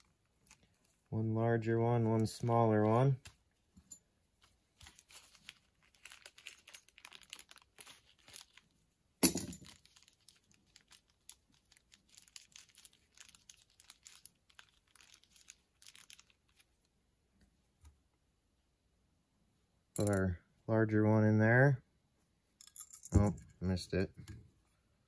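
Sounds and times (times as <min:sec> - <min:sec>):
plastic bag crinkling: 0:04.8 - 0:08.8, 0:09.6 - 0:16.9.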